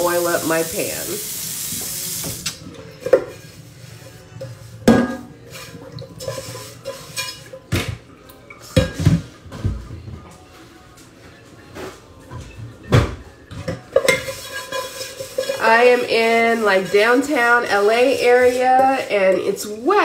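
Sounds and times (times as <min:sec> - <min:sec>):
frying pan and utensils clattering: 0:02.2 - 0:10.0, 0:12.3 - 0:20.0.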